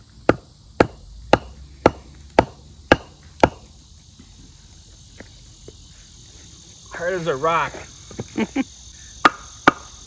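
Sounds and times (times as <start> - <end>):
crickets chirring: 0.0 - 10.0
wooden log knocking on metal stake: 0.3 - 3.6.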